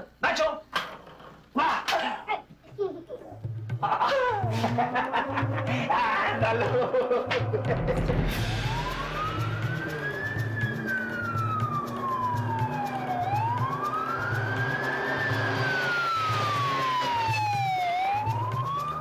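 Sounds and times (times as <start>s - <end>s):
low rhythmic pulse: 3.4s - 19.0s
police siren wailing: 4.4s - 19.0s.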